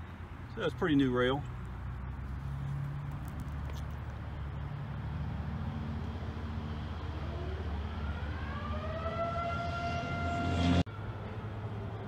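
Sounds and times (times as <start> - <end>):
locomotive air horn: 8.8 - 10.9.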